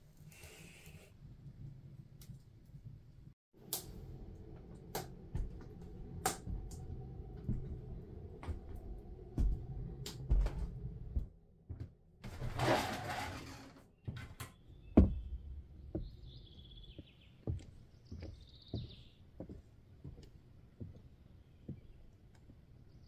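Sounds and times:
footsteps on wooden floorboards: 5.2s - 12.4s, 14.0s - 22.6s
small bird chirping: 14.5s - 19.5s.

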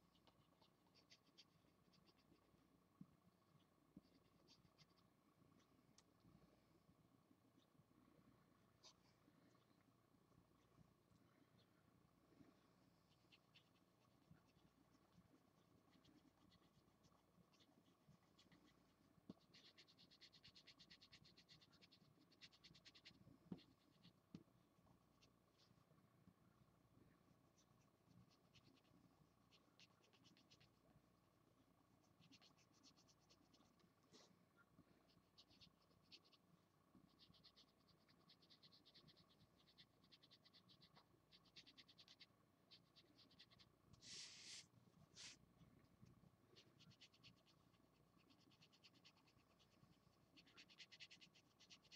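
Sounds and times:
marker scratching on paper: 44.0s - 45.4s.

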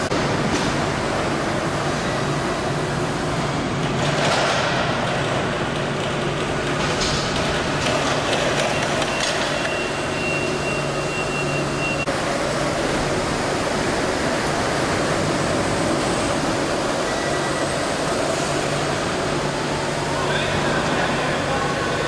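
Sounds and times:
electric forklifts humming: 0.0s - 22.0s
thin high whine: 16.9s - 18.8s.

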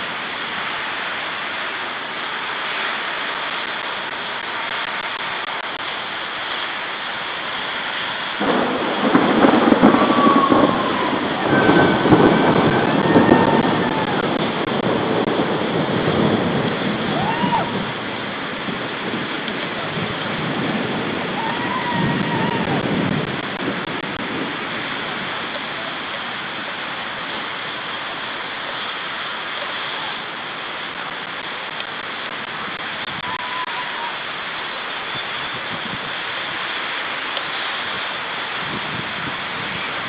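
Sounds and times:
rain hiss: 0.0s - 40.0s
thunder rolling: 8.4s - 27.8s, 31.0s - 34.1s.

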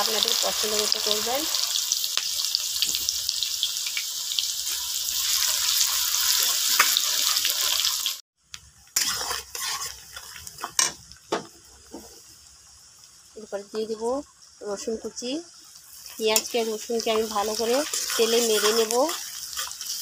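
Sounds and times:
onions sizzling in oil: 0.0s - 20.0s
metal spatula scraping and knocking: 9.0s - 10.0s.

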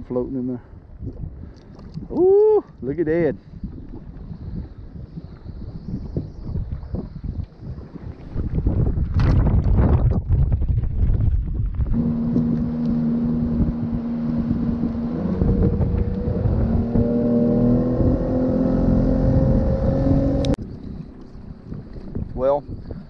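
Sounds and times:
wind buffeting microphone: 0.0s - 23.0s
outboard motor running: 11.9s - 22.2s.

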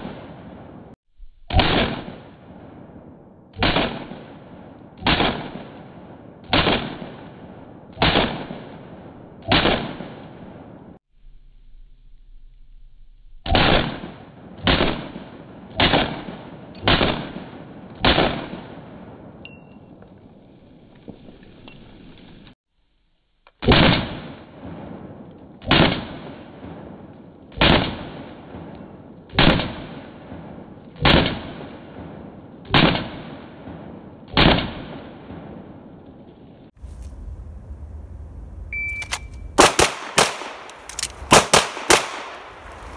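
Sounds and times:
pistol shots: 1.5s - 2.4s, 3.6s - 5.8s, 6.4s - 11.0s, 13.4s - 19.3s, 23.6s - 35.8s, 39.0s - 42.9s.

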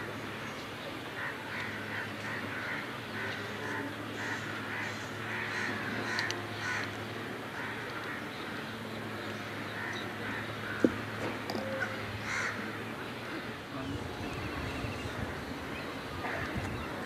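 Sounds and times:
crows cawing: 1.2s - 8.3s, 9.4s - 11.0s, 11.6s - 13.6s.

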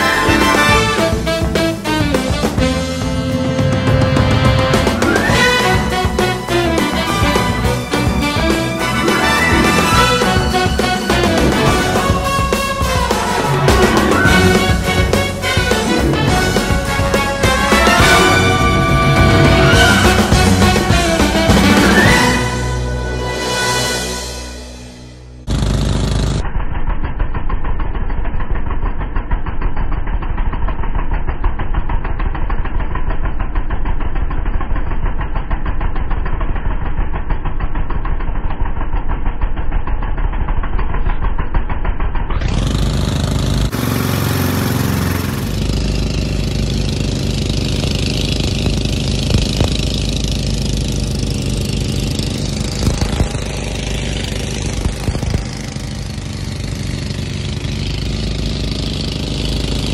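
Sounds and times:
boat engine running: 0.0s - 59.9s.

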